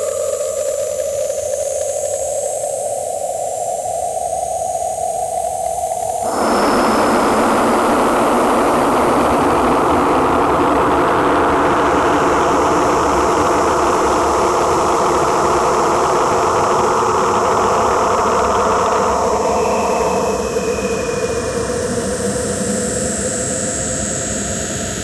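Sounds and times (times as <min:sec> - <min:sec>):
industrial noise music: 0:06.2 - 0:12.1.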